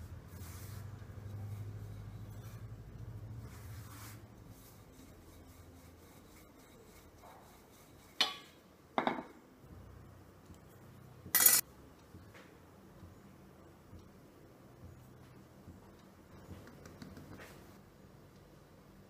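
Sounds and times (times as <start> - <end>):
rolling pin rubbing on dough: 0.0 - 8.3.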